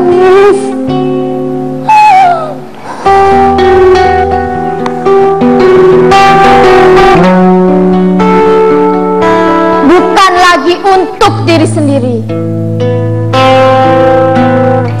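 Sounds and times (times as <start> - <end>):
slow guitar music: 0.0 - 15.0.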